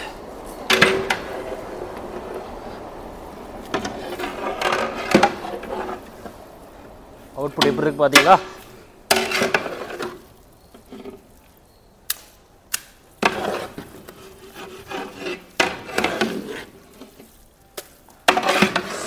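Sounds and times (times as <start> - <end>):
ladle scraping thick food in pot: 3.7 - 6.4, 13.2 - 17.4, 18.3 - 19.0.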